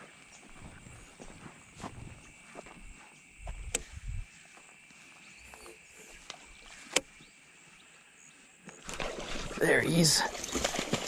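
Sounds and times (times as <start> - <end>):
soft footsteps on grass: 0.0 - 8.6
faint outdoor background: 0.0 - 11.0.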